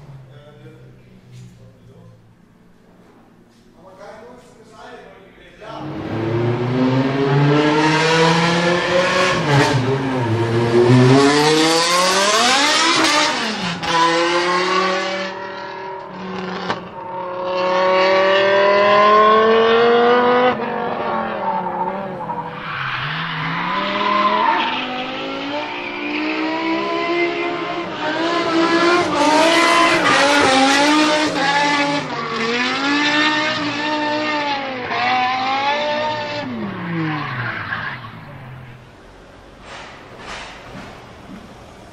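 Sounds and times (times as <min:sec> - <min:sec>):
car engine revving: 0:05.6 - 0:41.9.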